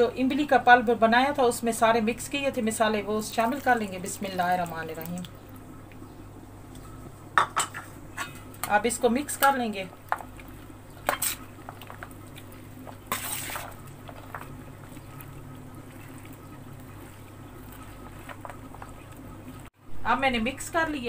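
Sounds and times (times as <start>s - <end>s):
steady low hum: 0.0s - 21.0s
soft wet stirring: 9.4s - 19.8s.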